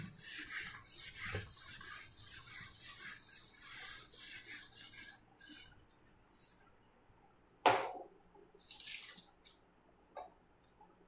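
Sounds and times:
eraser rubbing on whiteboard: 0.0 - 6.6.

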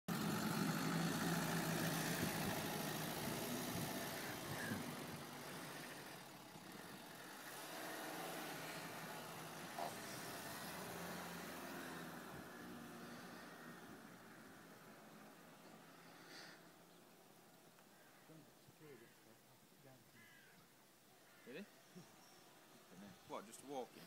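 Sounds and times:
pickup truck engine running: 0.1 - 7.9.

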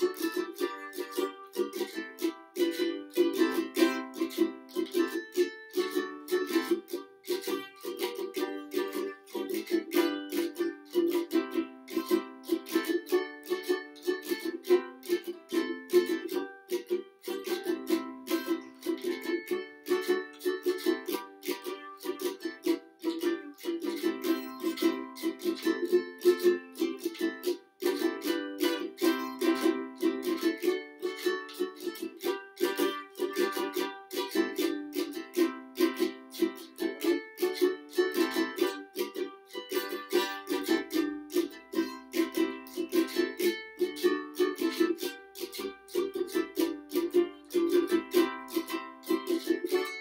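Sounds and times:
ukulele strumming chords: 0.0 - 50.0.

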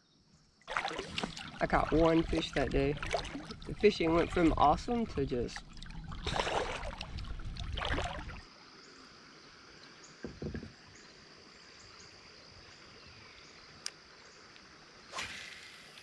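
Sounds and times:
faint high insect drone: 0.0 - 0.6, 7.7 - 16.0
paddle splashing water: 0.6 - 8.5
soft knocks: 10.2 - 10.8.

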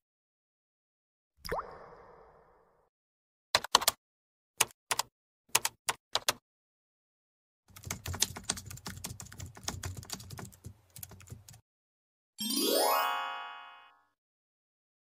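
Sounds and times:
keyboard typing: 3.6 - 4.0, 4.6 - 6.4, 7.7 - 11.6.

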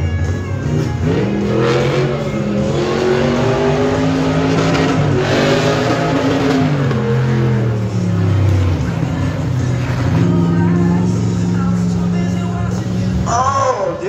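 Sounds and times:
truck engine revving: 0.0 - 13.4.

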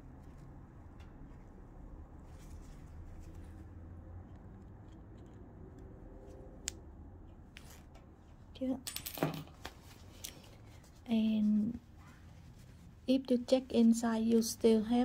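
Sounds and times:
fabric rustling and scraping: 0.0 - 4.0, 9.6 - 14.5.

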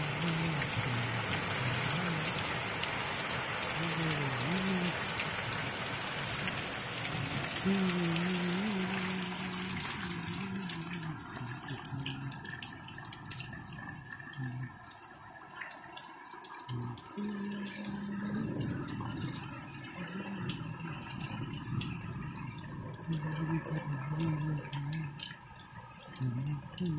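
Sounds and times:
person's voice: 0.0 - 2.4, 3.7 - 5.1, 7.6 - 12.6, 14.3 - 14.8, 16.7 - 21.6, 22.8 - 25.3, 26.1 - 26.9
heavy rain on trees: 0.0 - 26.9
water dripping: 0.0 - 26.9.

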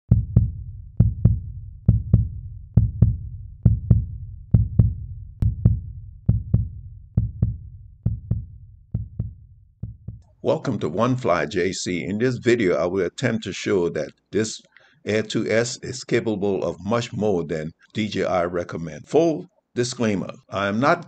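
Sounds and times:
heartbeat double thumps: 0.0 - 10.3.

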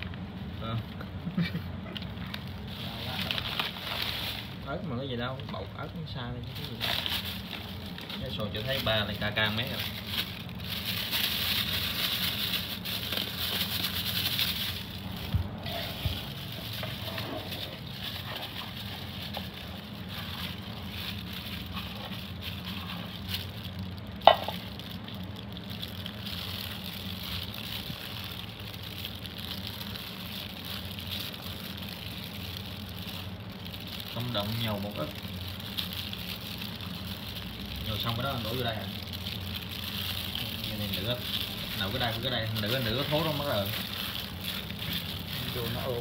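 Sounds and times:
spoon mixing sticky porridge: 40.4 - 46.0.

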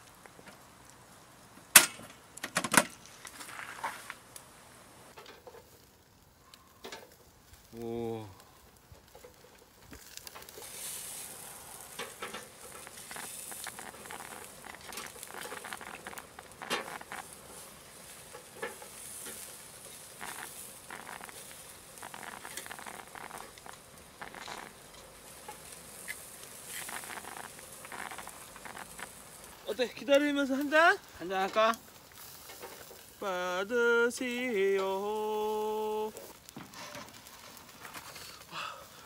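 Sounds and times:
ribs sizzling on a grill: 0.0 - 39.0
fat spitting and popping: 9.9 - 17.7, 18.6 - 29.5.

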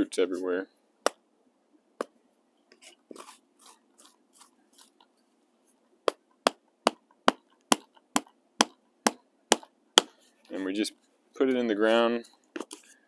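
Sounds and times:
soil crunching: 2.9 - 5.1.

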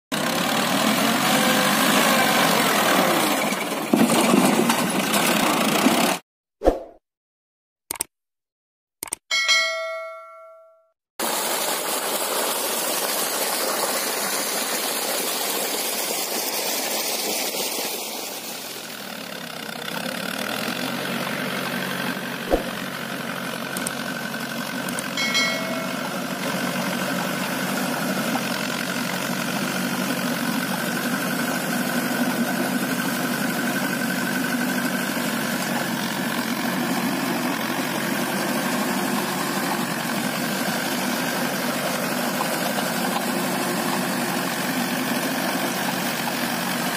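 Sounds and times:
tractor diesel engine under load: 0.1 - 6.2, 11.2 - 46.9
short chime: 9.3 - 10.9, 25.2 - 26.3
water gushing from pipe: 11.2 - 19.3, 23.8 - 46.9.

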